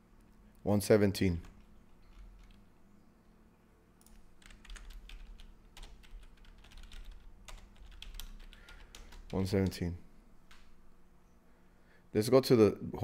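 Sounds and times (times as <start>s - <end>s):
keyboard typing: 1.4s - 2.7s, 4.0s - 9.8s.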